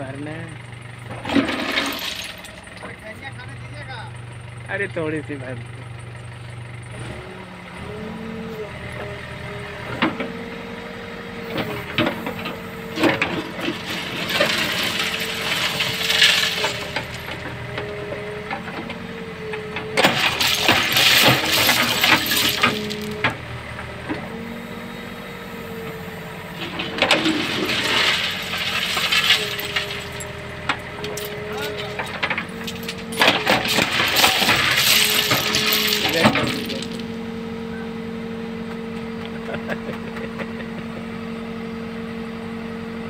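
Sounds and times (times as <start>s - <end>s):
diesel engine under load: 0.0s - 43.0s
stones clattering in bucket: 1.2s - 2.8s, 13.0s - 17.6s, 20.0s - 23.3s, 26.6s - 37.1s.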